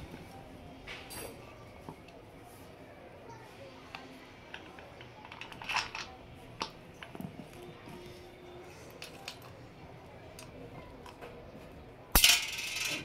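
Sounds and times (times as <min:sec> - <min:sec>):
rustles of hands handling parts: 0:04.5 - 0:08.2.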